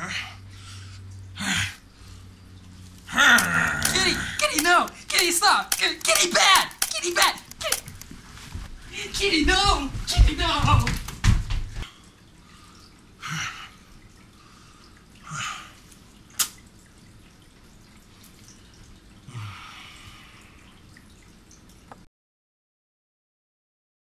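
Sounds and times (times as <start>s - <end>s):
sharp click: 3.4s - 8.0s.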